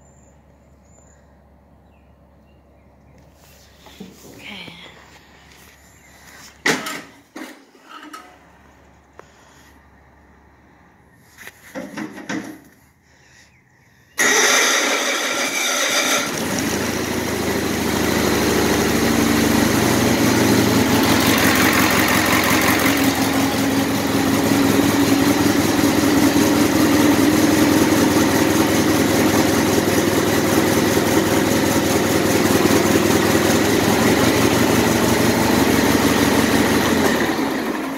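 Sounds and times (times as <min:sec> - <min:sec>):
tractor engine starting and idling: 0:14.2 - 0:37.9.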